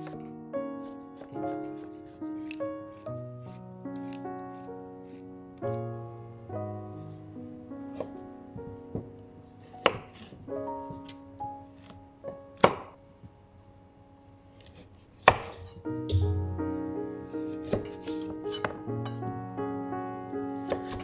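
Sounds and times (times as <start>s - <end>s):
piano music: 0.0s - 21.0s
knife chopping on cutting board: 0.8s - 4.6s, 9.0s - 10.4s, 12.6s - 13.0s, 14.5s - 16.5s, 17.6s - 18.8s, 20.6s - 21.0s.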